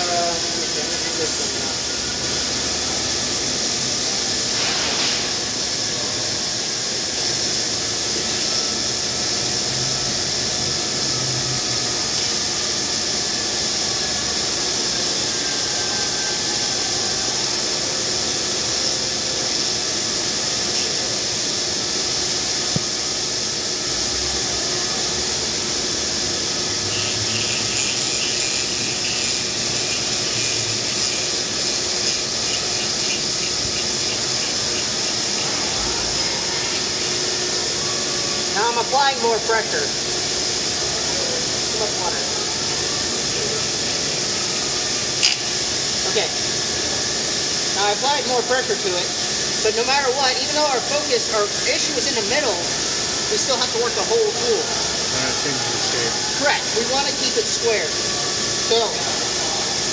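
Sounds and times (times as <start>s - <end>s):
hissing grind of spindle: 26.5s - 38.6s
faint rapid chatter: 54.4s - 59.9s.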